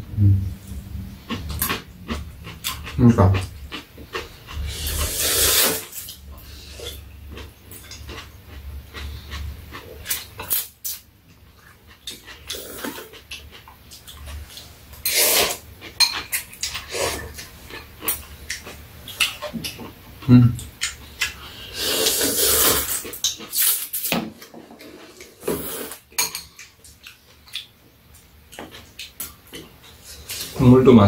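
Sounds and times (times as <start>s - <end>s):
slurping noodles: 4.5s - 6.9s, 15.0s - 15.6s, 21.7s - 23.7s, 24.8s - 26.0s.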